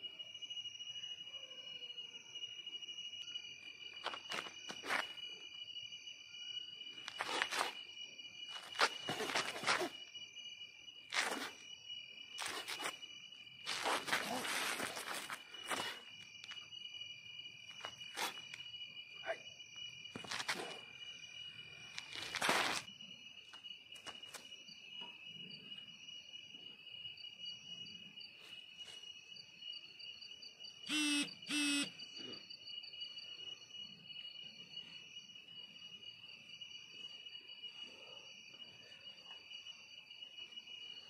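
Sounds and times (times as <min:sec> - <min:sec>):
crickets and insects trilling: 0:00.0 - 0:41.0
short loud pitched calls: 0:30.9 - 0:31.9.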